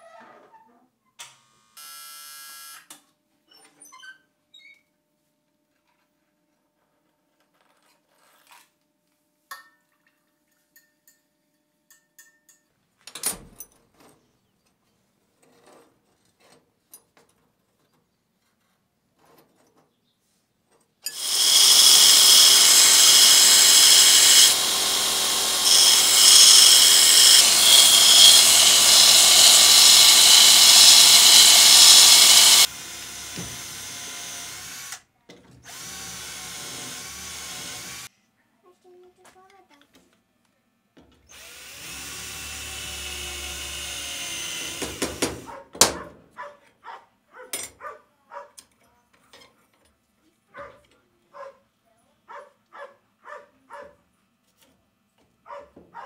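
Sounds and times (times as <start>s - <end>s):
faint metal clinks: 9.6s - 12.8s
belt grinder whine: 21.1s - 35.0s, 35.7s - 38.1s, 41.4s - 45.4s
cordless drill running: 21.1s - 35.0s, 35.7s - 38.1s, 41.3s - 45.5s.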